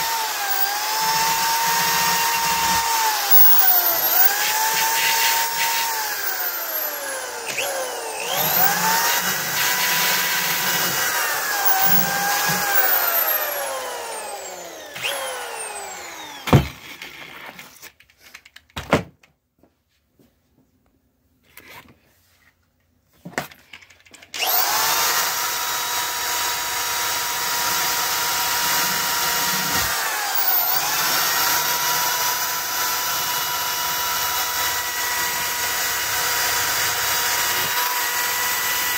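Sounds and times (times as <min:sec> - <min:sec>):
electric drill wire brushing metal: 0:00.0 - 0:16.5, 0:24.4 - 0:38.9.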